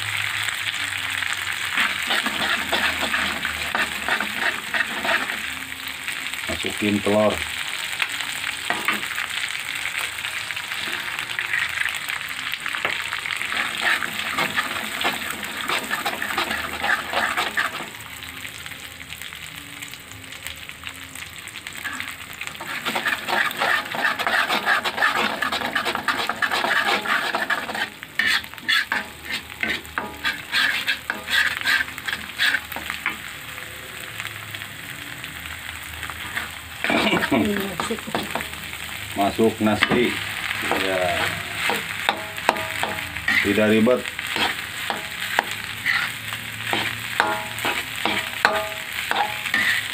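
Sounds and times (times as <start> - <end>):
egg sizzling in hot oil: 0.0 - 49.9
spatula scraping a wok: 1.6 - 5.6, 8.7 - 9.3, 10.6 - 11.9, 12.8 - 18.1, 21.7 - 33.3, 36.1 - 49.9.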